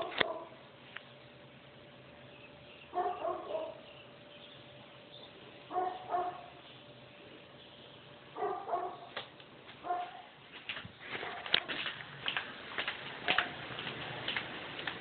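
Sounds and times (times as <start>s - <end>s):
dog barking: 0.0s - 0.6s, 2.9s - 3.8s, 5.7s - 6.6s, 8.4s - 9.1s, 9.8s - 10.3s, 11.1s - 11.8s.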